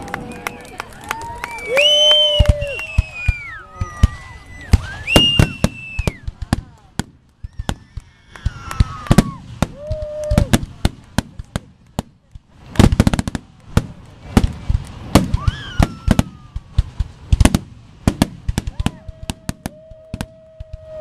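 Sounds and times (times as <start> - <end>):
fireworks bursting with bangs: 0.0 - 21.0
fireworks whistles falling in pitch: 1.3 - 6.3, 7.4 - 10.6, 15.2 - 16.6.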